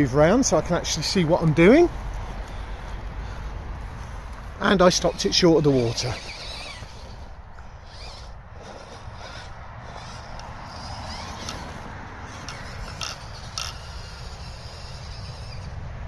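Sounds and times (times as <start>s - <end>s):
toy car motor whirring: 2.5s - 16.0s
sharp clicks: 5.9s - 15.7s.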